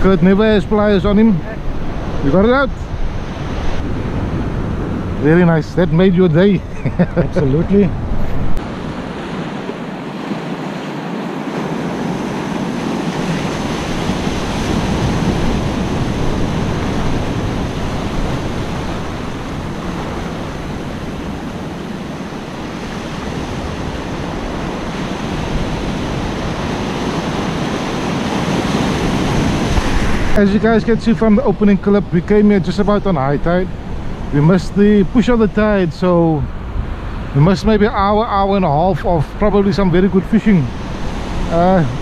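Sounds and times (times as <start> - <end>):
wind buffeting microphone: 0.0 - 42.0
surf breaking on beach: 6.4 - 32.6.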